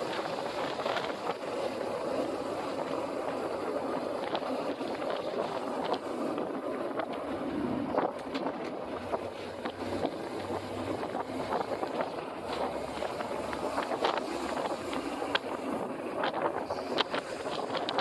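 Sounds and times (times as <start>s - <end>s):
low steady road rumble: 0.0s - 18.0s
wind buffeting microphone: 0.0s - 18.0s.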